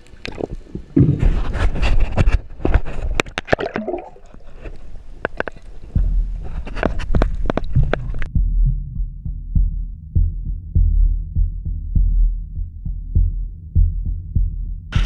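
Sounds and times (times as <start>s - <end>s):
water splashing and gurgling: 0.0s - 8.3s
sharp clicks and knocks: 4.6s - 8.3s
low rumble: 5.8s - 15.0s.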